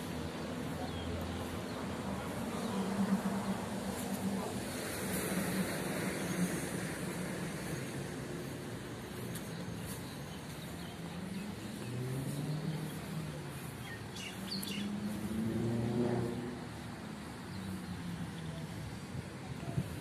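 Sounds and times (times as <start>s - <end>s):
cars passing: 0.0s - 20.0s
small birds chirping: 8.5s - 15.5s.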